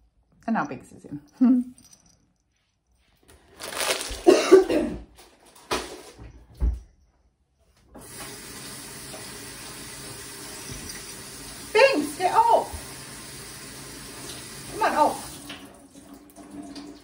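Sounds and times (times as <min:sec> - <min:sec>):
handling noises: 0:01.8 - 0:07.0
kitchen tap running into sink: 0:07.9 - 0:17.0.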